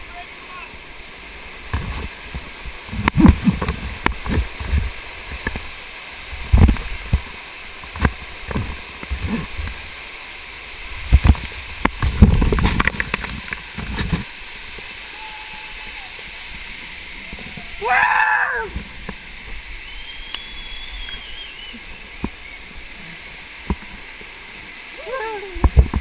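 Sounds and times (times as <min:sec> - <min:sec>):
waterfall rushing: 0:00.0 - 0:26.0.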